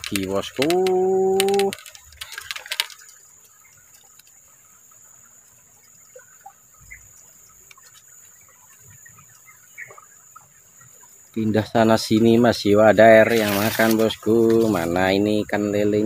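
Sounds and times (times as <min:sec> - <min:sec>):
sharp clicks: 0:00.0 - 0:03.1
faint bird chirps: 0:00.9 - 0:15.6.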